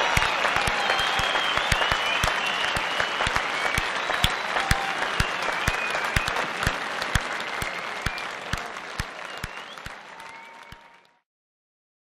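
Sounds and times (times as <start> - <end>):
high whistles: 0.0 - 6.5, 7.2 - 8.4, 9.2 - 10.8
crowd applauding: 0.0 - 11.2.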